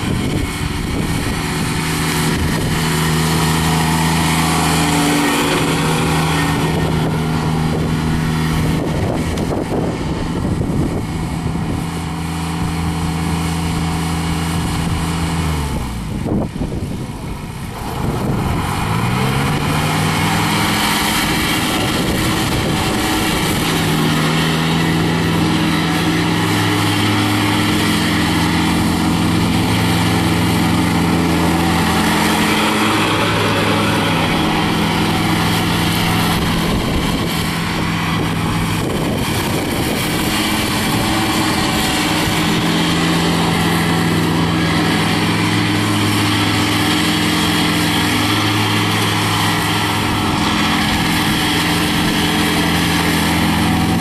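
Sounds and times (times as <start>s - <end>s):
mower blades cutting grass: 0.0s - 54.0s
tractor diesel engine running: 0.0s - 54.0s.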